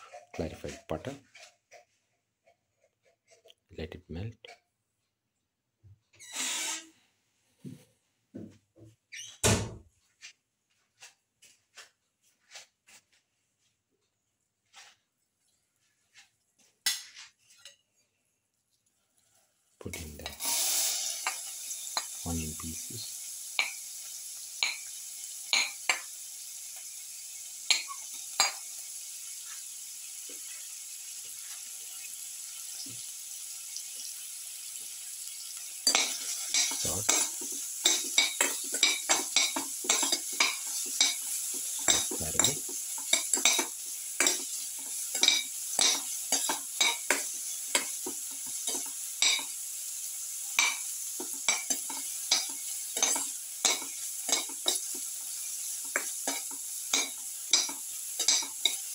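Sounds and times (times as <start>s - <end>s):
spatula scraping and clinking on pan: 16.9s - 17.9s, 23.6s - 23.9s, 25.5s - 26.1s, 27.7s - 28.7s, 35.8s - 49.6s, 50.5s - 58.9s
onions sizzling in a pan: 18.9s - 58.9s.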